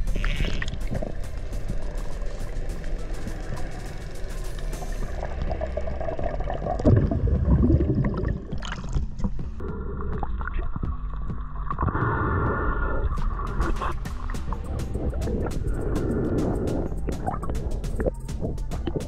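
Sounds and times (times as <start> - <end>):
water splashing: 0.0 - 19.0
water gurgling underwater: 5.0 - 19.0.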